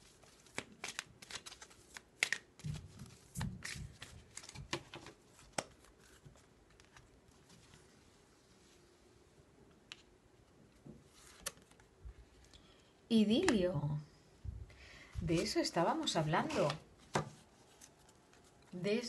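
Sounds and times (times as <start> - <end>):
cards being shuffled: 0.0 - 7.8, 11.1 - 11.9, 16.3 - 18.8.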